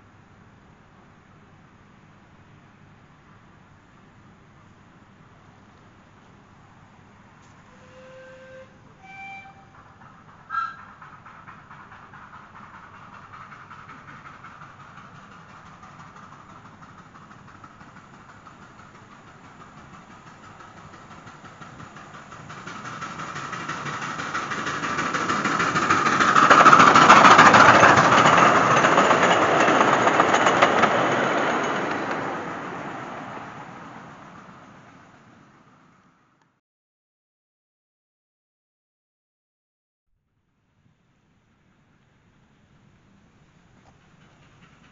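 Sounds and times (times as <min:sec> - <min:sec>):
miniature steam locomotive running: 0:06.8 - 0:36.1, 0:43.3 - 0:44.9.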